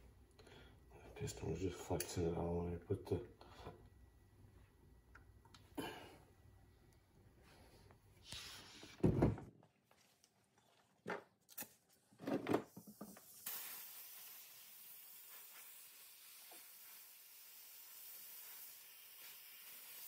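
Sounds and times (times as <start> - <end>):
faint steady hiss: 12.6 - 20.0.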